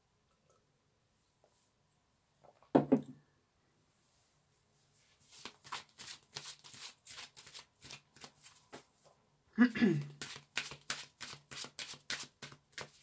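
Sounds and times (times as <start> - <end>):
knock: 2.7 - 3.1
cards being shuffled: 5.3 - 8.8, 10.0 - 13.0.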